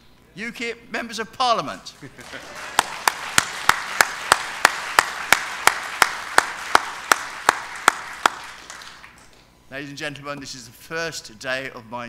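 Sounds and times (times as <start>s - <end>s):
audience applauding: 2.0s - 9.4s
loud evenly spaced claps: 2.2s - 9.4s.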